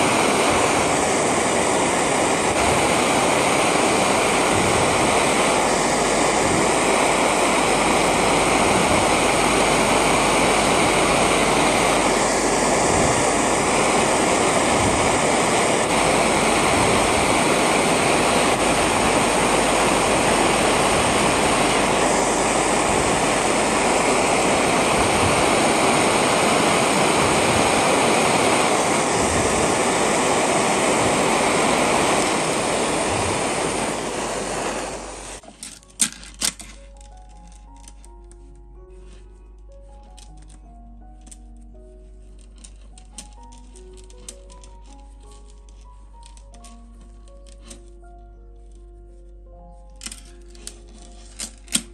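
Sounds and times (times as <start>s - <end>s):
torch flame hissing: 0.0s - 35.5s, 42.6s - 46.8s.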